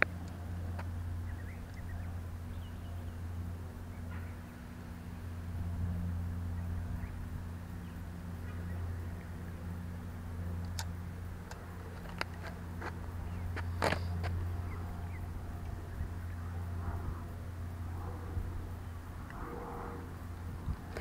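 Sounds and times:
steady low hum: 0.0s - 21.0s
faint bird chirps: 1.2s - 3.3s.

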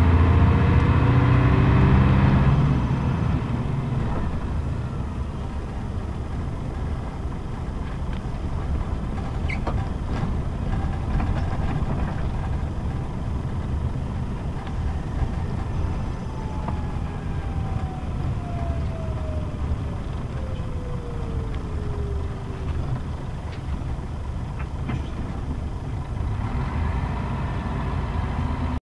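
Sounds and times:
bus diesel engine running: 0.0s - 28.8s
road noise: 0.0s - 28.8s
whine sliding down in pitch: 14.2s - 23.3s.

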